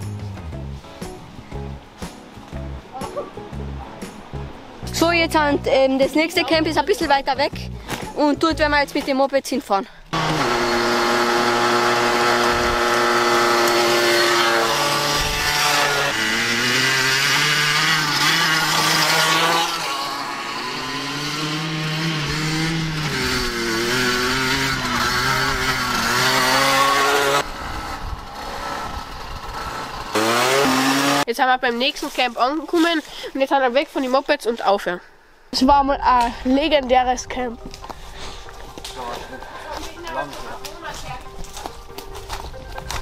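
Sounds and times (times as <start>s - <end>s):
dirt bike engine revving: 10.1s - 31.3s.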